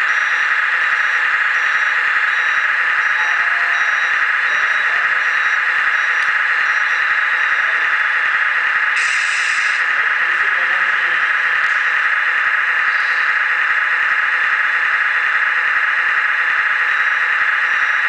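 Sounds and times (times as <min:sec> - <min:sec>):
faint high beeps: 0:00.0 - 0:07.9, 0:16.9 - 0:18.0
hydraulic pump whirring: 0:00.0 - 0:18.0.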